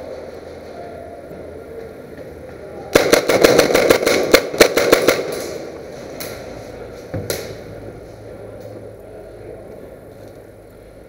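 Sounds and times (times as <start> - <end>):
airsoft gun shots echoing: 3.0 - 5.7.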